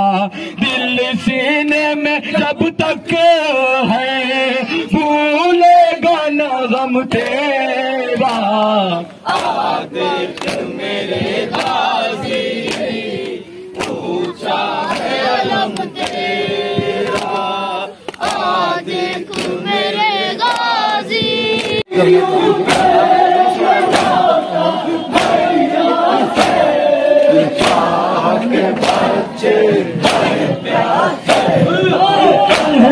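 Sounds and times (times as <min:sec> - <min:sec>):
group singing a lament in chorus: 0:00.0 - 0:32.9
hands beating on chests: 0:22.6 - 0:24.4, 0:25.1 - 0:26.8.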